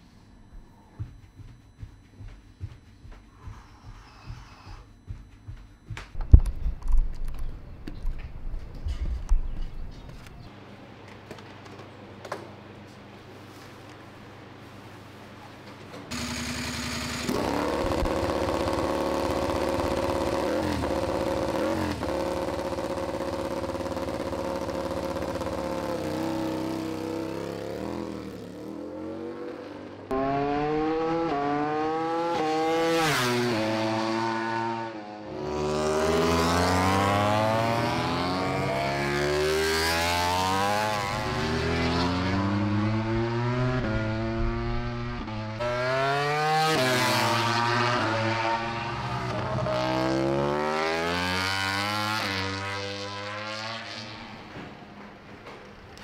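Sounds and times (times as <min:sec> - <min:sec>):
racing motorcycle engine: 0:16.1 - 0:55.0.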